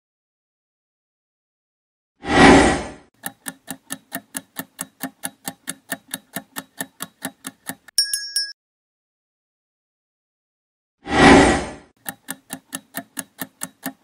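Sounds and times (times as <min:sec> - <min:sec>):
countdown timer ticking: 0:03.2 - 0:08.5, 0:12.0 - 0:14.0
bright chime: 0:08.0 - 0:08.6.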